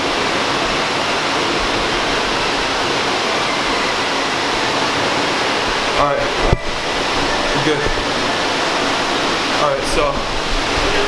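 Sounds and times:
water flowing in a tunnel: 0.0 - 11.0.

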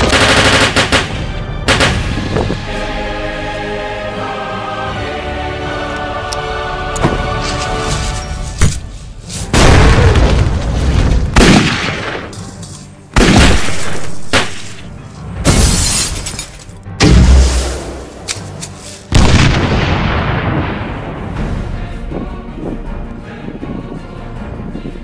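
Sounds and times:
background music: 0.0 - 25.0
loud explosion booms: 9.6 - 12.0, 19.2 - 21.4.

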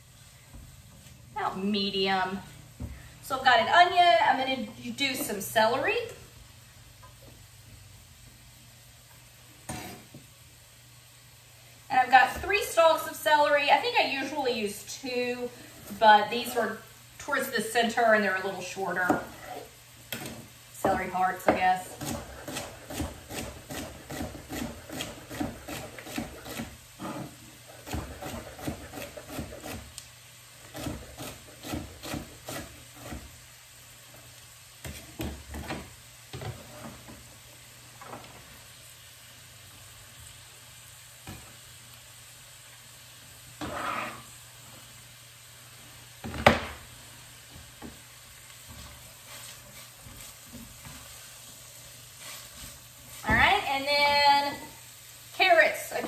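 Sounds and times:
onions sizzling in a pan: 0.0 - 56.0
knife chopping on wooden board: 20.2 - 27.2, 27.8 - 29.9, 30.7 - 33.3.

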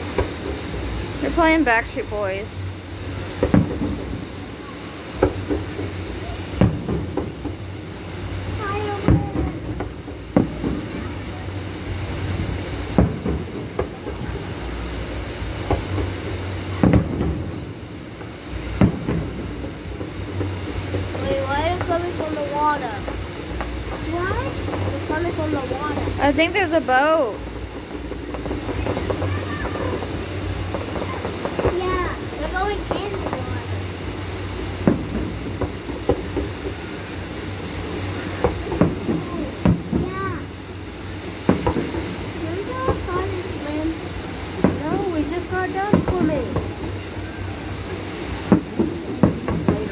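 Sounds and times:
distant fireworks booming: 0.0 - 49.9
low background noise: 0.0 - 49.9
steady low rumble: 0.0 - 49.9.

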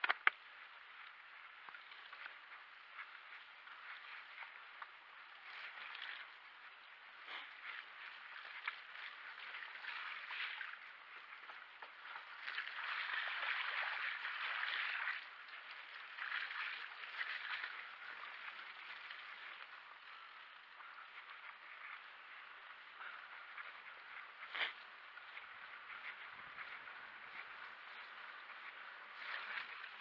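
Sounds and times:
bike tyres splashing through mud: 7.1 - 20.3, 23.9 - 30.0.

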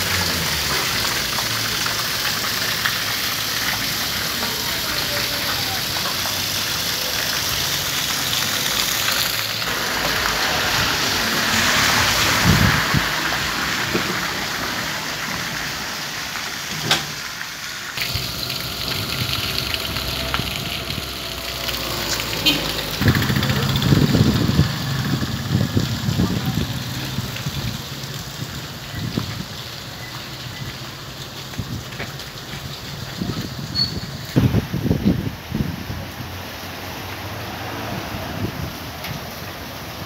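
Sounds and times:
water splashing onto asphalt: 0.0 - 40.0
low pump hum: 18.0 - 24.3.

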